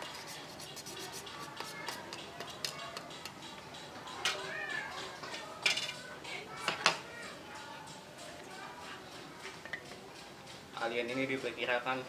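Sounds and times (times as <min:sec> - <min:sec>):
hand file rasping against tube: 0:00.0 - 0:02.6.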